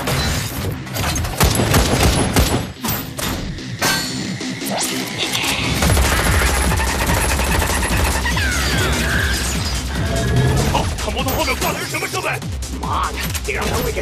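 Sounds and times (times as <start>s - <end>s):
rapid automatic gunfire: 5.8s - 9.2s.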